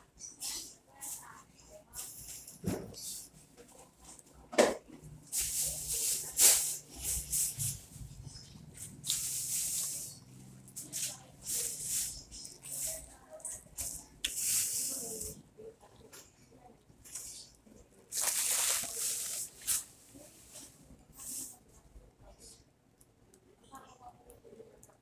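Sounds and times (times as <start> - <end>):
plastic bag crinkling: 18.1 - 19.9.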